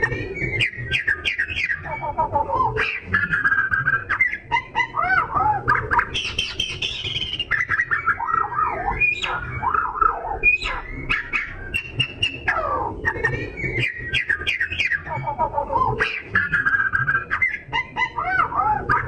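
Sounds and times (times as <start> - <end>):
bird singing whistled song: 0.4 - 2.2, 5.7 - 15.2.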